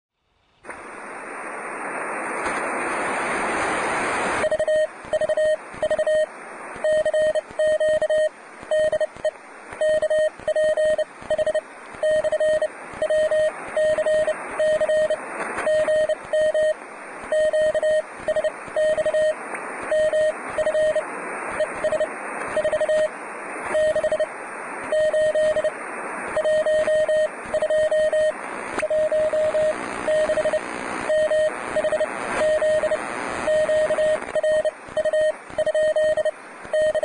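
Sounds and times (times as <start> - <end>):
radio receiver hiss: 0.6 - 37.0
morse code tone: 26.4 - 37.0.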